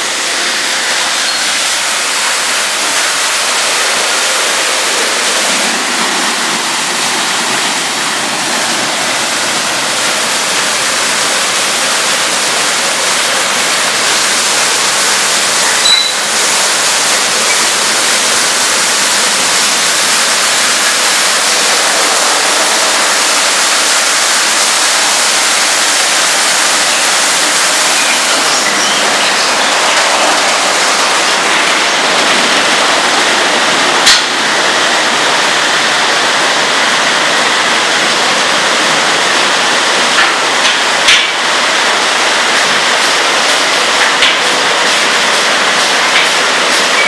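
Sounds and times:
car wash spray jets hissing: 0:00.0 - 0:47.0.

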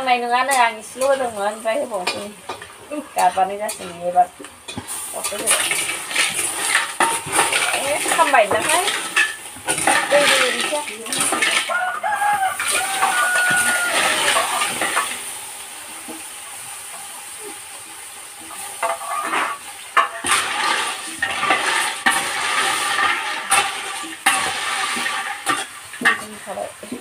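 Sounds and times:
liquid hissing in hot pan: 0:00.0 - 0:27.0
wooden spatula knocking in pan: 0:06.2 - 0:15.1.

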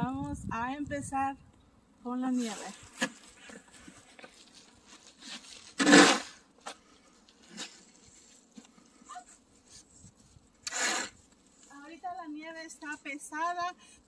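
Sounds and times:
snow shovel scraping pavement: 0:02.4 - 0:06.5, 0:10.7 - 0:11.2.

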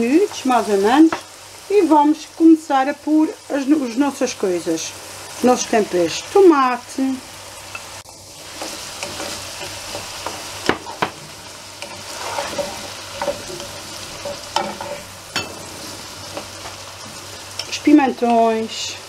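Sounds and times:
vegetables sizzling in frying pan: 0:00.0 - 0:19.0
wooden spoon stirring: 0:08.4 - 0:17.7.

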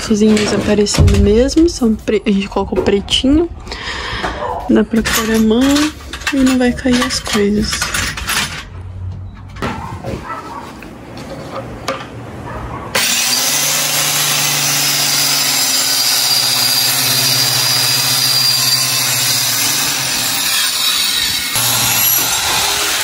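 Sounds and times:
electric jigsaw cutting plywood: 0:12.9 - 0:23.0.

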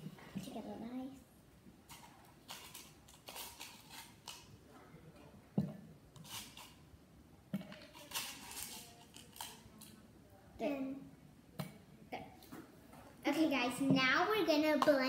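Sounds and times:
scratchy handling noises: 0:01.9 - 0:04.5, 0:06.2 - 0:06.8, 0:07.6 - 0:10.0
ice cubes rattling in plastic cup: 0:02.5 - 0:04.4, 0:07.8 - 0:09.6.

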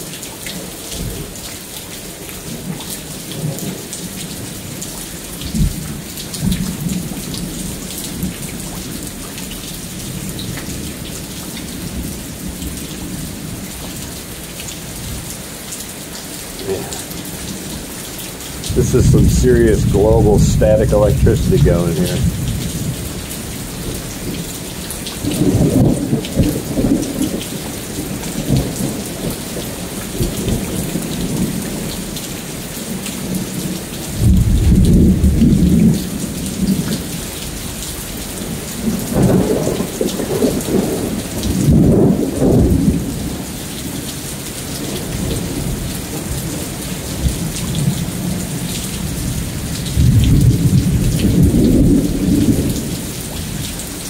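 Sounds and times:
steady rain falling: 0:00.0 - 0:54.0
thunder rumbling: 0:18.6 - 0:23.2.

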